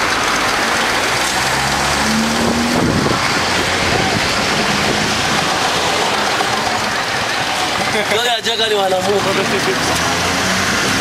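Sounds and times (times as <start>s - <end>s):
wind rushing over microphone: 1.5s - 8.0s.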